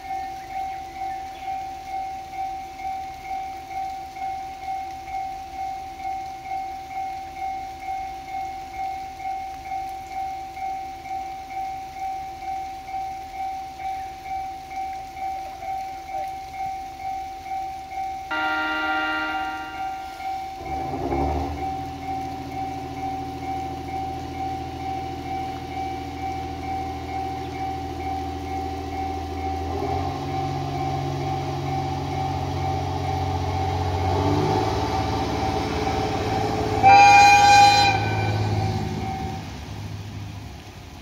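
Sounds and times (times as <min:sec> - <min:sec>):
train horn blast: 0:18.3 - 0:22.0, 0:33.8 - 0:39.7
diesel railcar engine: 0:18.3 - 0:41.0.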